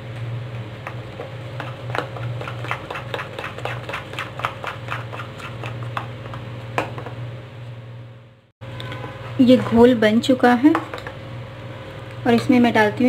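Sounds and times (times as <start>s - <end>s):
metal spoon beating batter in bowl: 0.8s - 7.0s.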